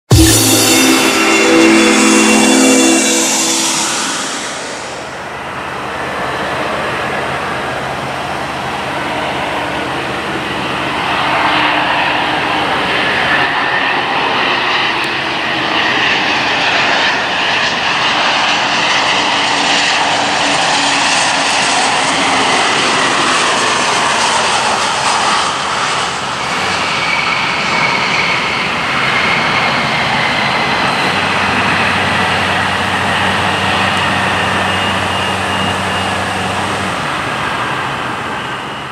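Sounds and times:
high jet whine: 0:00.0 - 0:06.2, 0:15.9 - 0:38.9.

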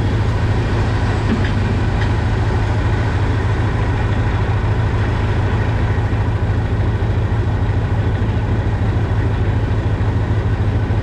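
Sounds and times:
tractor diesel engine running: 0:00.0 - 0:11.0.

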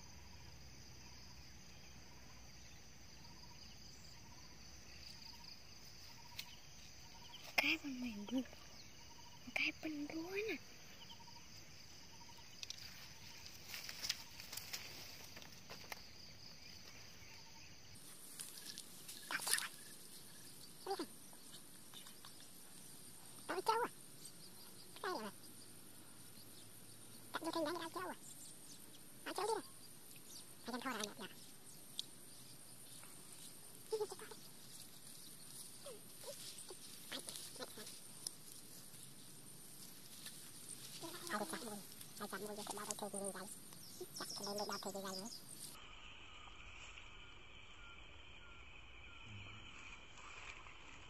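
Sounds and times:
steady high background hiss: 0:43.5 - 0:51.0.

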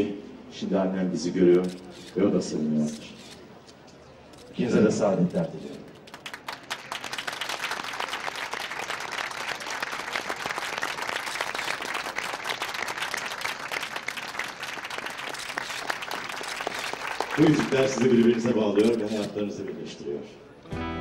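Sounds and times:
crowd applauding: 0:06.0 - 0:19.2.

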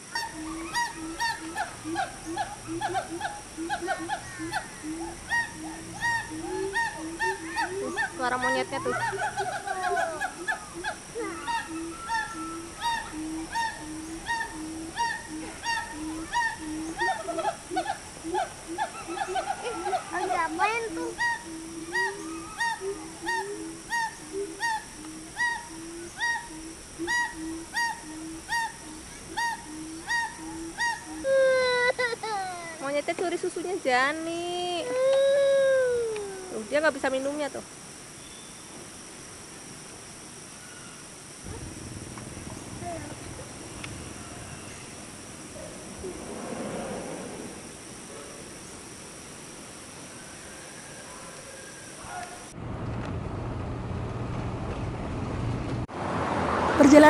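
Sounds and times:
short arching animal calls: 0:00.0 - 0:31.7
insects droning: 0:00.0 - 0:57.0
low murmur: 0:41.4 - 0:47.6.

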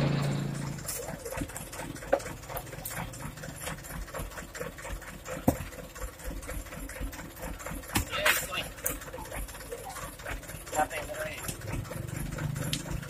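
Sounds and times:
diesel engine idling: 0:00.0 - 0:13.0
sharp knocks: 0:05.4 - 0:05.8.

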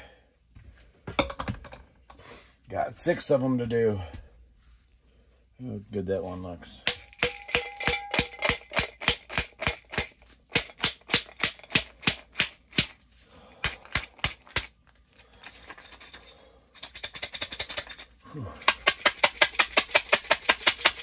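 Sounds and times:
grain clacking in shaken glass jar: 0:18.6 - 0:21.0.

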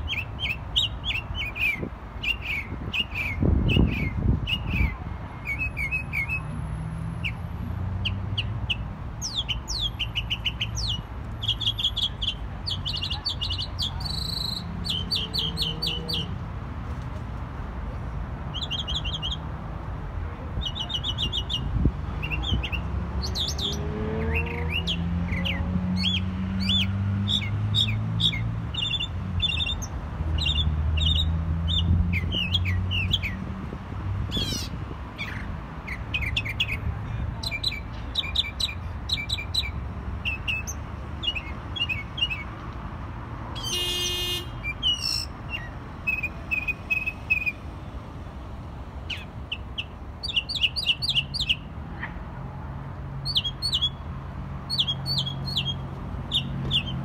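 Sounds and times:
mockingbird singing: 0:49.1 - 0:51.7, 0:54.7 - 0:57.0.

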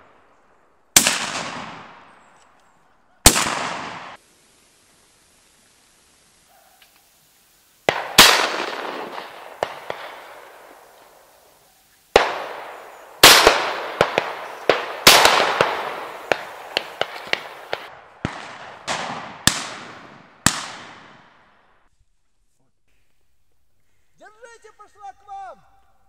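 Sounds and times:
shotgun blasts echoing: 0:00.0 - 0:02.3, 0:03.2 - 0:04.2, 0:07.9 - 0:11.4, 0:12.1 - 0:21.8.

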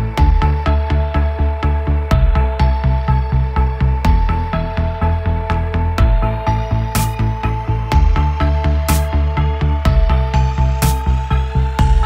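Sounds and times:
intro music with quick beat: 0:06.0 - 0:12.0.

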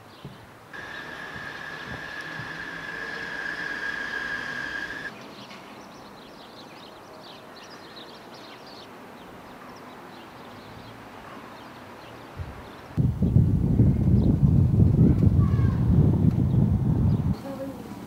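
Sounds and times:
street ambience: 0:00.0 - 0:18.0
faint bird chirps: 0:00.8 - 0:05.1
high-pitched squeal: 0:00.8 - 0:05.1.

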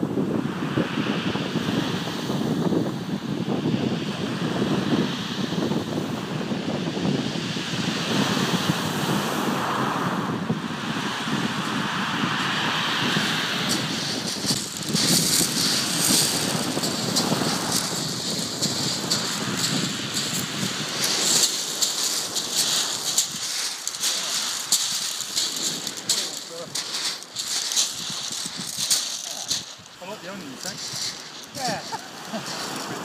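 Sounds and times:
surf on shingle beach: 0:00.0 - 0:33.0
footsteps crunching on pebbles: 0:13.6 - 0:33.0.

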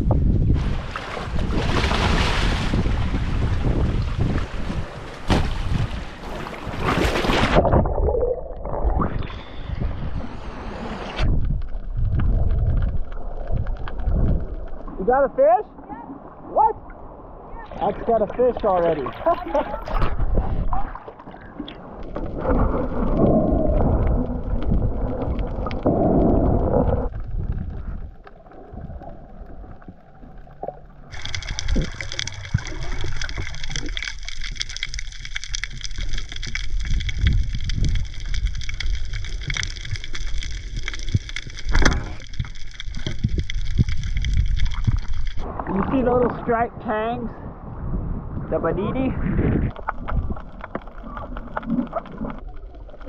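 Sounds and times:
muffled underwater rumbling: 0:00.0 - 0:53.0
underwater clicks: 0:11.3 - 0:15.0, 0:19.9 - 0:45.9, 0:49.6 - 0:53.0.

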